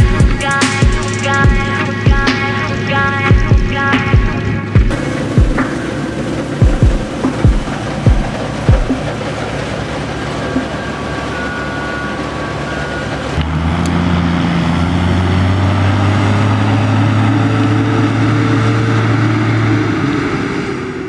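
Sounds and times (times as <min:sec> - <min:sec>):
farm machinery noise: 0:00.0 - 0:21.0
tractor engine hum: 0:00.0 - 0:21.0.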